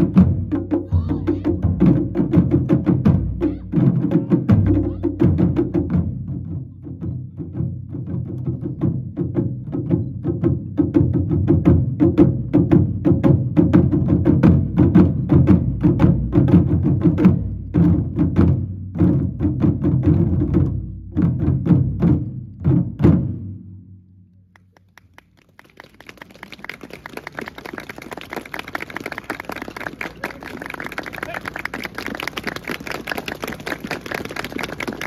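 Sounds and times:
taiko drums played with sticks: 0:00.0 - 0:24.0
crowd noise: 0:00.8 - 0:01.7, 0:25.6 - 0:35.0
applause: 0:24.6 - 0:35.0.

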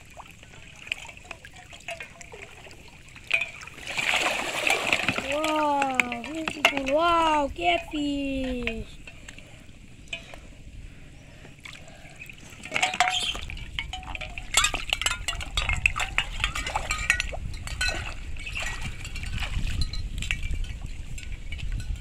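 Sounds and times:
water splashing from wading: 0:00.0 - 0:10.5, 0:11.6 - 0:20.3
bottle traps clinking together: 0:01.1 - 0:02.6, 0:03.2 - 0:03.9, 0:04.6 - 0:09.2, 0:12.6 - 0:22.0.

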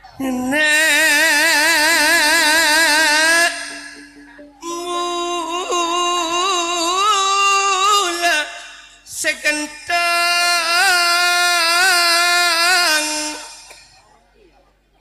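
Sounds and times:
amplified melodic line with slides: 0:01.5 - 0:07.2.

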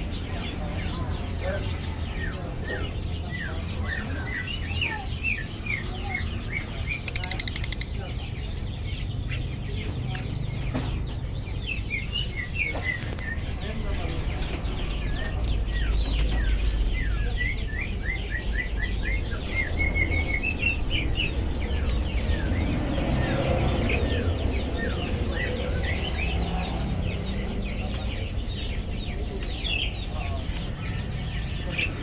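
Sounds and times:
lovebird chirping: 0:07.0 - 0:08.0.

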